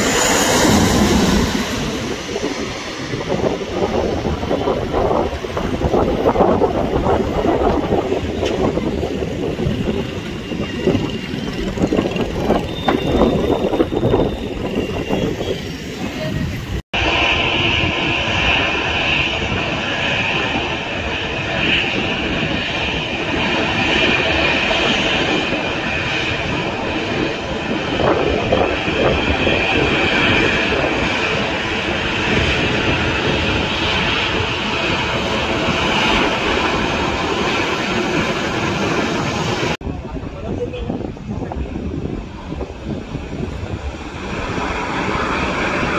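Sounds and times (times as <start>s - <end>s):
distant jet engine rumble: 0.0s - 45.9s.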